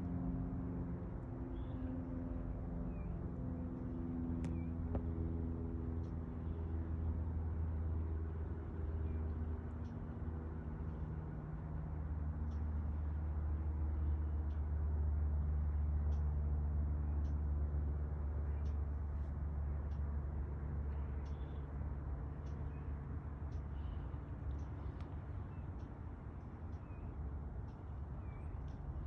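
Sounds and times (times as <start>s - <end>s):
distant traffic rumble: 0.0s - 29.0s
faint engine hum: 0.0s - 29.0s
faint high ticks: 6.0s - 6.2s, 9.7s - 10.0s, 12.4s - 13.0s, 14.4s - 14.8s, 16.0s - 16.5s, 17.1s - 17.6s, 18.5s - 20.2s, 20.9s - 29.0s.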